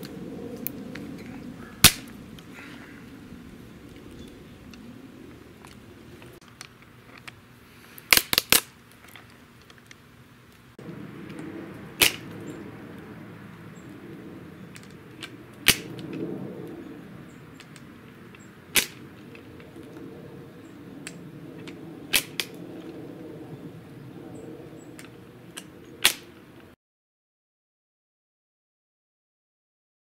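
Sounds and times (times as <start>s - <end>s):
nutcracker cracking nut shells: 8.0s - 10.0s, 12.0s - 12.4s, 17.6s - 19.7s.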